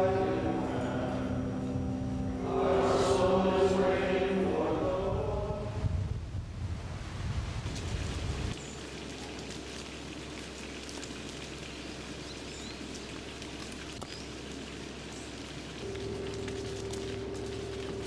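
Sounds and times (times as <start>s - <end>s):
steady low tone: 0.0s - 6.3s, 15.8s - 18.0s
low rumble: 0.0s - 8.6s.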